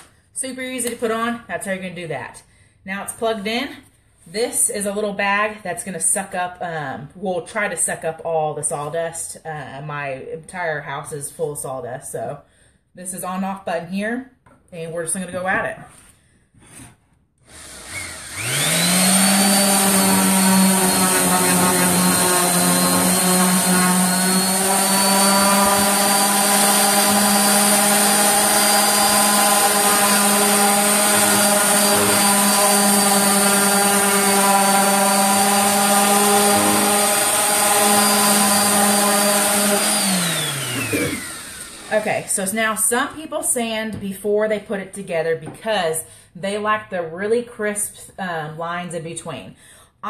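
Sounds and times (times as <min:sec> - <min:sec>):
orbital sander humming: 0:17.5 - 0:42.4.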